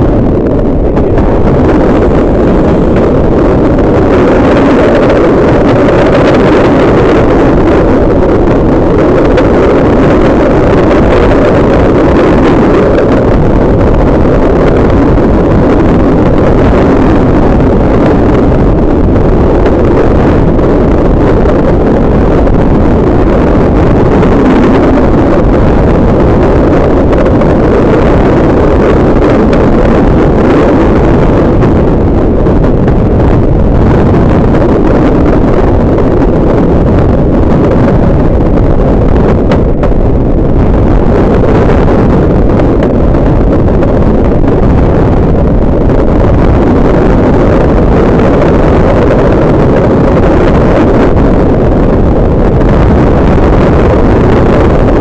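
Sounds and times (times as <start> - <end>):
train running rumble: 0.0 - 55.0
wind buffeting microphone: 0.0 - 55.0.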